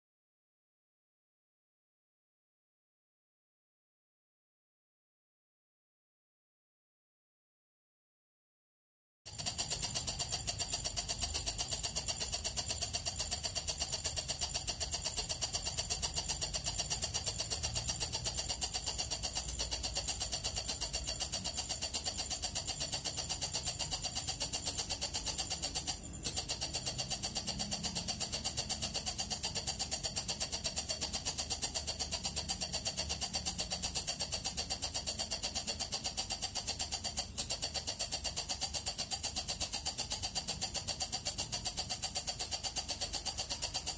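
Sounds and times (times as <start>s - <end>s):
katydid trilling: 9.3s - 43.9s.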